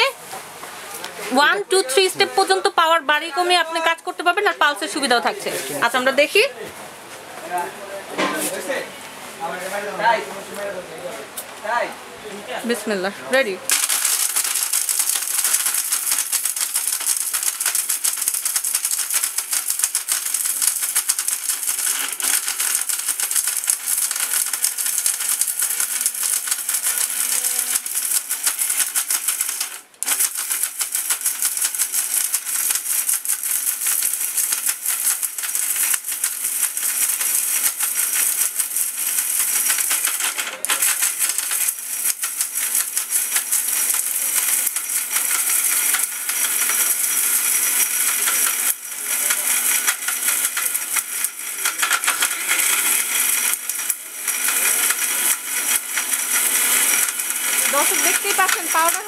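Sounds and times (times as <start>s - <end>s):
mixer grinder running: 0.0s - 6.6s, 12.8s - 59.0s
spice pieces rattling in metal jar: 13.7s - 59.0s.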